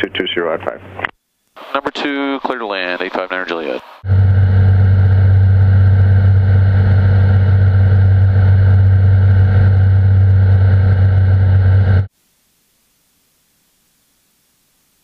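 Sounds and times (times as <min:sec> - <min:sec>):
propeller plane engine droning: 0:02.8 - 0:12.1.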